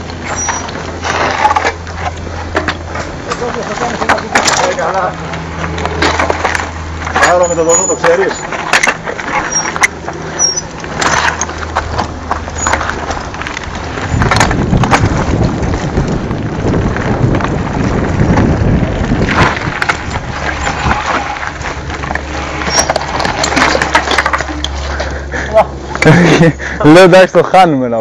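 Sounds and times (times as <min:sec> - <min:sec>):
tyres crunching over stones: 0:00.0 - 0:27.5
bike rattles and knocks: 0:00.0 - 0:27.6
wind rumble on microphone: 0:10.6 - 0:23.8.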